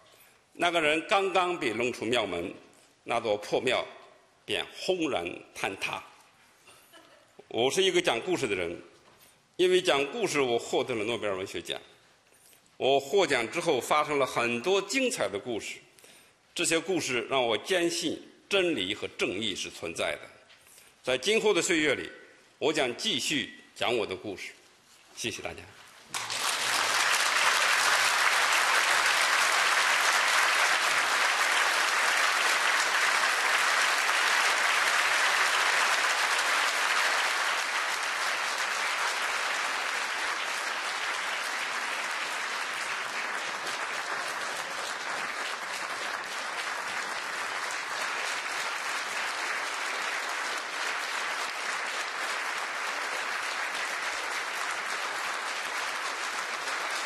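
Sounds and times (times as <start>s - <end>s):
audience applause: 26.1s - 57.0s.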